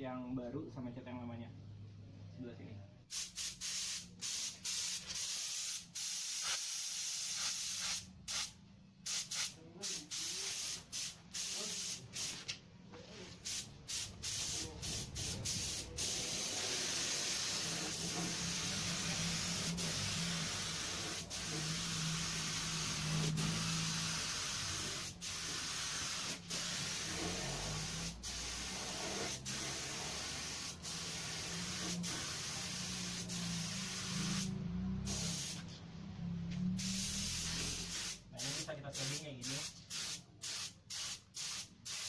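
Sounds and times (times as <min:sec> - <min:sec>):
spray gun hissing: 0:03.1 - 0:08.5, 0:13.4 - 0:34.5, 0:35.1 - 0:35.6, 0:36.8 - 0:42.0.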